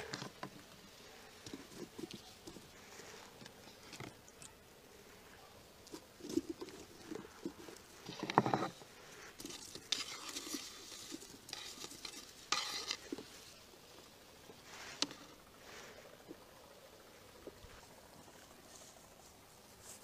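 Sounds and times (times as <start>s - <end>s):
food scraped off wooden board: 9.5s - 13.2s.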